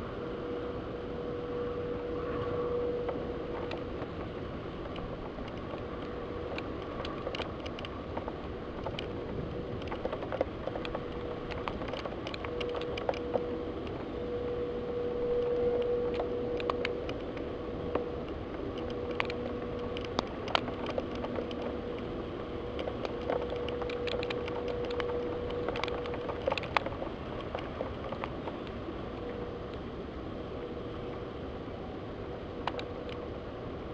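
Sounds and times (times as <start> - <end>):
faint steady hum: 0.0 - 33.9
steady rain: 0.0 - 33.9
raindrops tapping on window glass: 3.0 - 13.5, 22.7 - 28.8.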